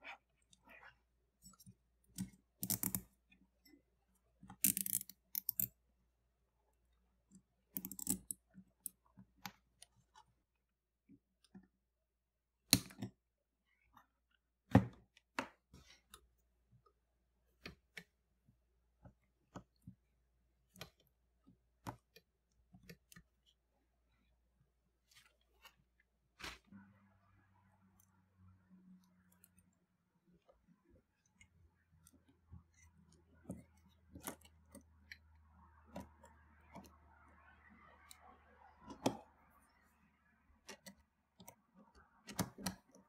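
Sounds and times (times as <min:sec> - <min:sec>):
wire connectors clicking: 0:02.2 - 0:03.1.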